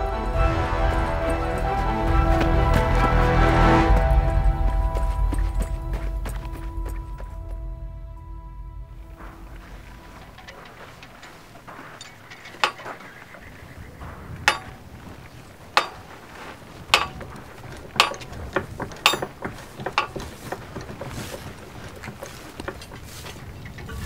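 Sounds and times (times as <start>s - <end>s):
hammer striking metal: 9.1s - 13.0s, 14.5s - 14.8s, 15.8s - 16.1s, 16.9s - 21.4s
light metallic clinks: 9.2s - 13.8s, 14.4s - 14.8s, 15.7s - 16.2s, 16.8s - 24.0s.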